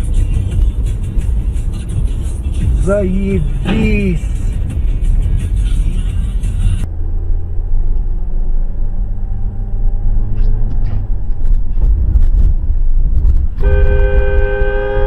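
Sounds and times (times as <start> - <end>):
car engine and road noise: 0.0 - 15.0
two-tone car horn: 13.6 - 15.0.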